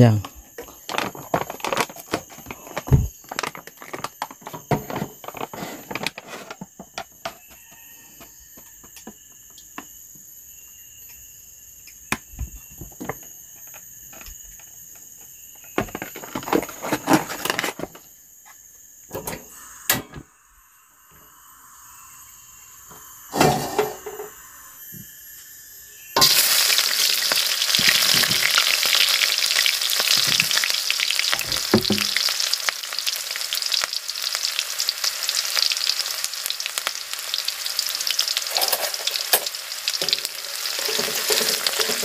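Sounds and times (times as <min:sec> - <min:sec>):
kitchenware knocks and clinks: 0:00.6 - 0:07.8, 0:40.8 - 0:42.0.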